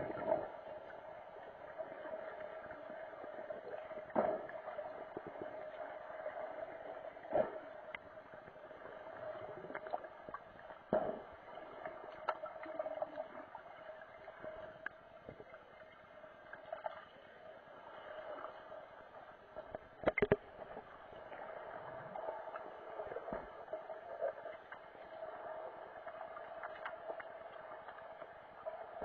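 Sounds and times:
underwater knocks and clicks: 0:03.6 - 0:06.1, 0:09.4 - 0:13.4, 0:19.6 - 0:20.9.

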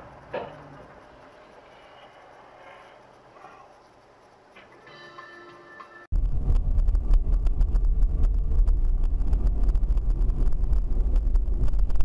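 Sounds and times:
faint steady tones: 0:00.0 - 0:06.1
constant crackle: 0:06.1 - 0:12.0
low rumbling driving noise: 0:06.1 - 0:12.0
wind buffeting microphone: 0:06.1 - 0:12.0.

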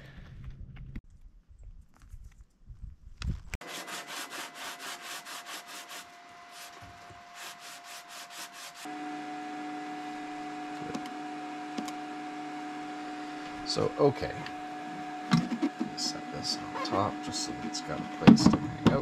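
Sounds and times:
pad rubbing on cutting mat: 0:03.8 - 0:08.9
hum with held tones: 0:08.8 - 0:19.0.

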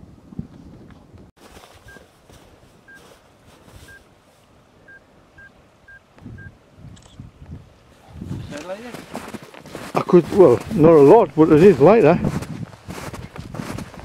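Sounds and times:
short electronic beeps: 0:04.9 - 0:07.2.

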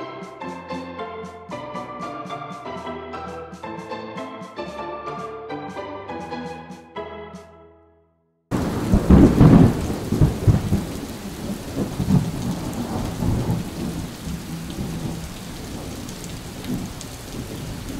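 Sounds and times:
steady rain: 0:08.5 - 0:17.9
thunder roll: 0:08.5 - 0:17.9.

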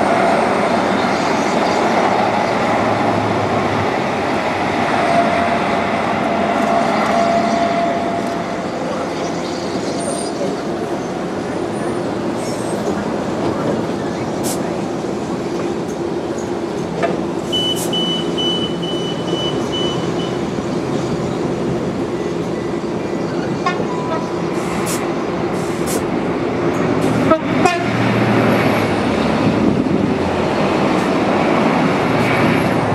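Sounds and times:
diesel train engine drone: 0:00.0 - 0:32.9
short high beeps: 0:17.5 - 0:20.4.

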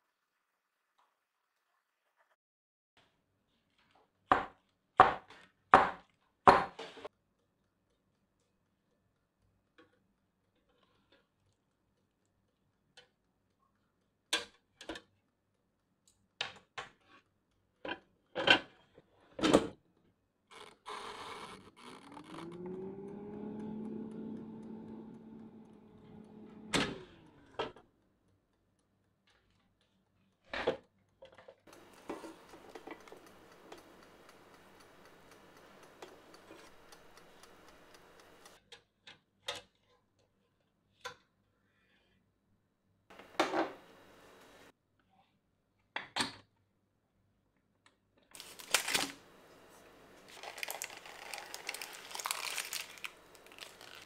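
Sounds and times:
air fryer fan humming: 0:21.0 - 0:27.9, 0:31.7 - 0:38.6, 0:43.1 - 0:44.7, 0:48.4 - 0:54.0
air fryer clunk: 0:22.5 - 0:27.8, 0:43.2 - 0:43.8.

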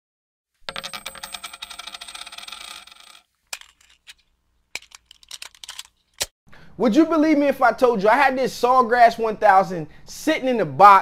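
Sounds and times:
rapid metallic clinking: 0:00.7 - 0:06.2.

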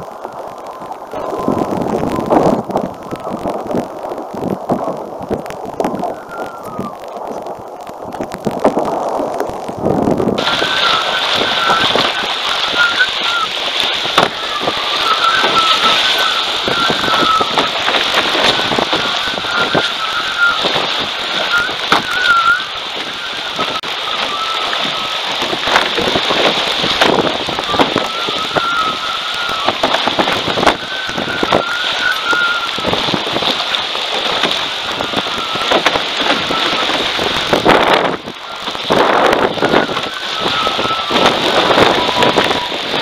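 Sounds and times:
rush of water and spray: 0:00.0 - 0:43.0
wind buffeting microphone: 0:00.0 - 0:43.0
water slaps: 0:10.4 - 0:43.0
thin wavering high whistle: 0:10.5 - 0:13.5, 0:14.4 - 0:20.7, 0:21.3 - 0:25.2, 0:27.7 - 0:29.8, 0:30.6 - 0:32.9, 0:35.0 - 0:36.9, 0:39.4 - 0:42.7.

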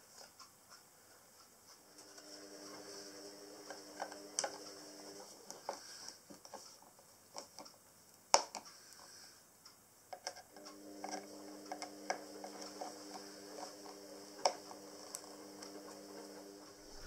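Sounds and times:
steady low hum: 0:10.8 - 0:17.0.

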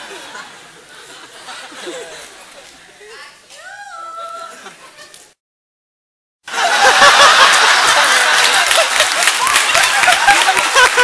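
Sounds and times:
audience laughing: 0:00.0 - 0:02.7, 0:06.5 - 0:11.0
audience clapping: 0:06.6 - 0:11.0.

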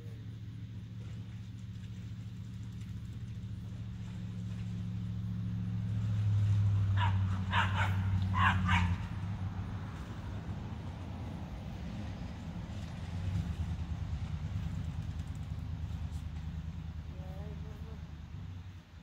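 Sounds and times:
low steady hum: 0:00.0 - 0:19.0
dog barking: 0:06.9 - 0:09.1.

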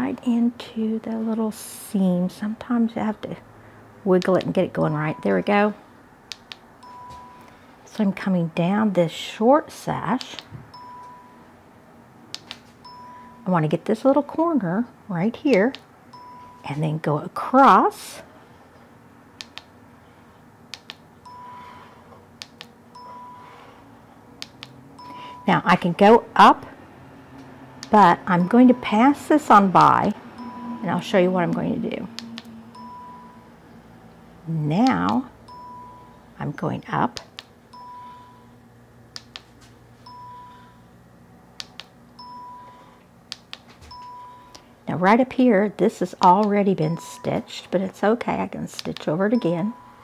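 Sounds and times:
faint low hum: 0:00.0 - 0:50.0
short beeps: 0:04.9 - 0:05.6, 0:06.8 - 0:07.5, 0:10.7 - 0:11.5, 0:12.8 - 0:13.5, 0:16.1 - 0:16.8, 0:21.2 - 0:21.9, 0:23.0 - 0:23.7, 0:25.0 - 0:25.8, 0:28.4 - 0:29.2, 0:30.3 - 0:31.2, 0:32.1 - 0:33.5, 0:35.4 - 0:36.3, 0:37.7 - 0:38.5, 0:40.0 - 0:40.8, 0:42.2 - 0:42.9, 0:43.9 - 0:44.6, 0:46.8 - 0:47.5, 0:49.4 - 0:50.0.

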